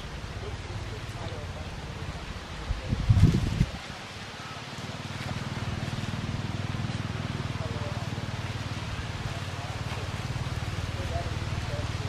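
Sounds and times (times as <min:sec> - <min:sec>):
vehicle engine throbbing: 0:04.9 - 0:12.0.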